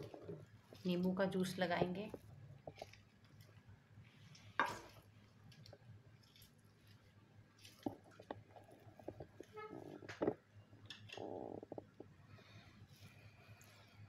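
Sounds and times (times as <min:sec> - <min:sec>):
wet squishing: 0:02.1 - 0:12.2.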